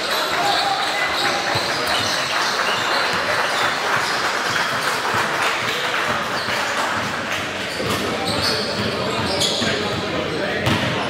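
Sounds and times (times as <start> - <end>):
crowd clapping and cheering: 0.0 - 7.7
voices in crowd: 0.0 - 11.0.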